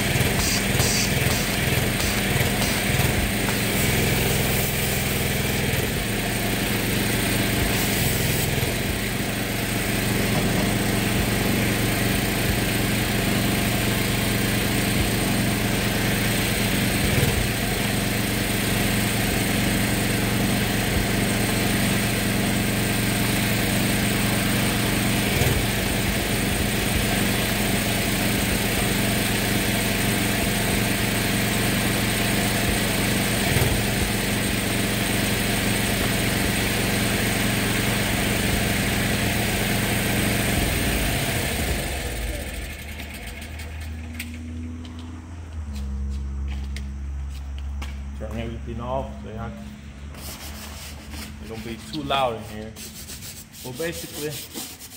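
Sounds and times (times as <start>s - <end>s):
foam cannon hissing: 0.0s - 14.0s
small gasoline engine running: 0.0s - 44.8s, 50.2s - 54.9s.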